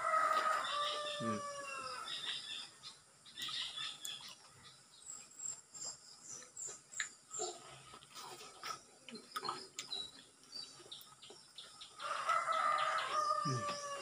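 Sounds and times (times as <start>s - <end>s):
rooster crowing: 0.0s - 2.1s, 12.0s - 14.0s.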